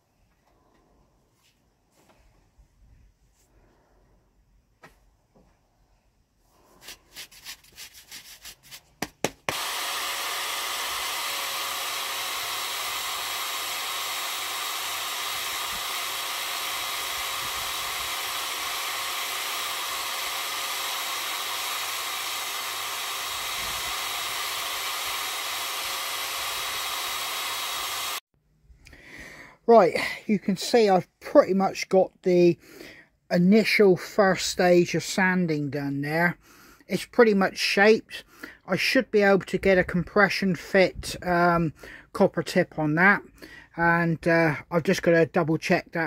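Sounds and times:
electric drill sanding wood: 9.4 - 28.3.

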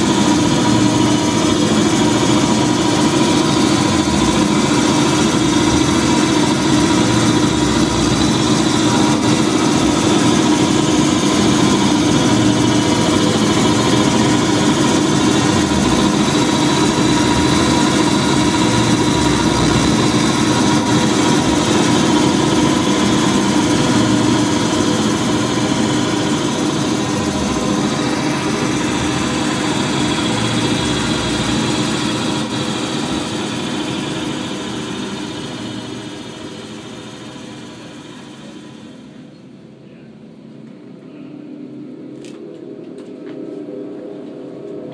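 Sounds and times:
dense droning noise with held tones: 0.0 - 44.9.

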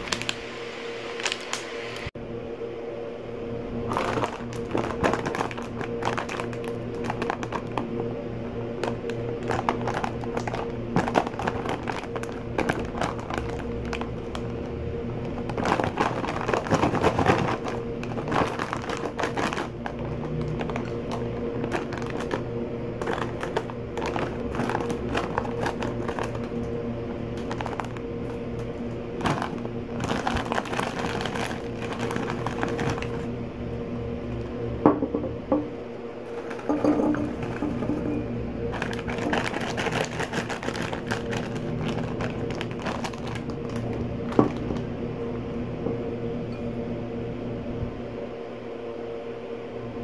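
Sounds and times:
snack bag crinkling: 0.0 - 0.4, 1.2 - 1.7, 3.8 - 8.0, 8.7 - 33.3, 36.2 - 44.9
scissors cutting plastic: 3.9 - 7.9, 8.8 - 26.8.

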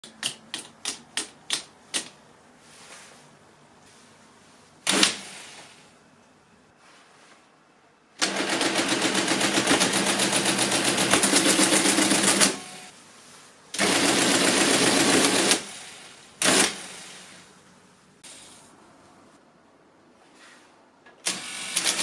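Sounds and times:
mechanical calculator clatter: 8.2 - 12.9, 21.3 - 22.0.

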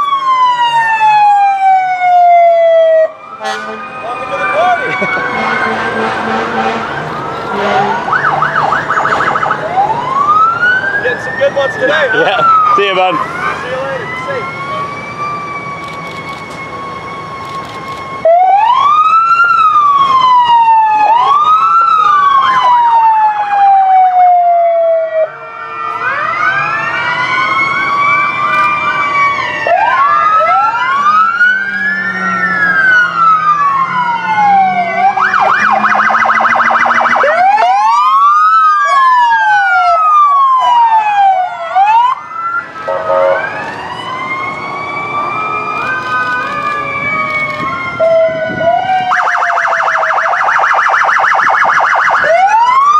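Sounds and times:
siren fast yelp: 0.0 - 16.5, 17.4 - 52.9
emergency sirens wailing: 0.0 - 52.9.

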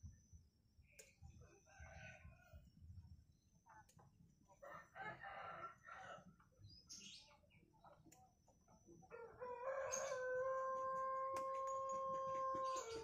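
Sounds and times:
rooster crowing: 4.6 - 6.2, 9.1 - 13.0.

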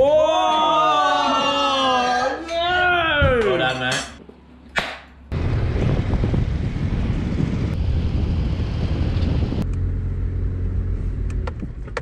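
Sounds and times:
wind rushing past window: 5.3 - 9.6
vehicle engine and tyre rumble: 5.3 - 12.0.

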